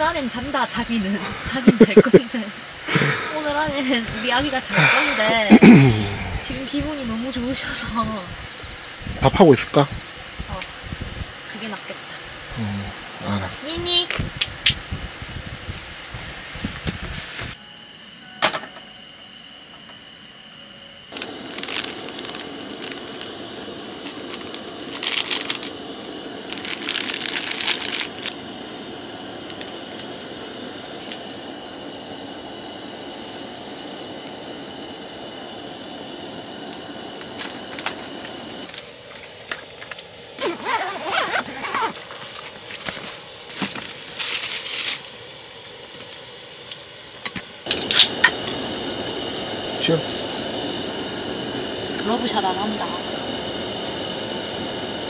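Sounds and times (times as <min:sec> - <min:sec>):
thin high whine: 0:00.0 - 0:55.0
pot boiling: 0:21.1 - 0:55.0.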